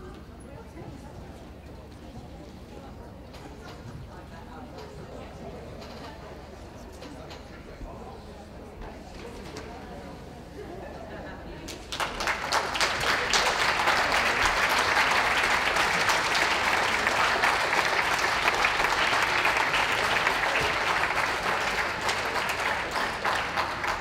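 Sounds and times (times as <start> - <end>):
audience applauding: 11.8 - 24.0.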